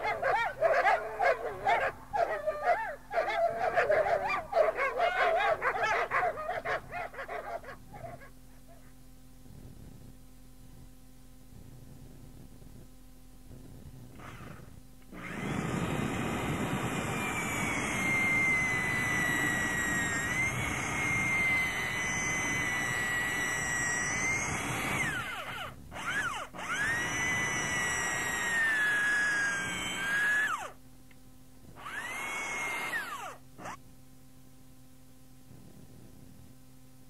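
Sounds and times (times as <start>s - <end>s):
electric power drill whining: 14.2s - 30.8s, 31.7s - 33.8s.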